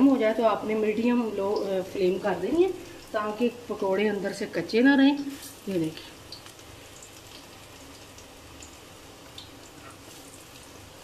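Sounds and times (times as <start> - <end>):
oil sizzling with pops: 0.0 - 11.0.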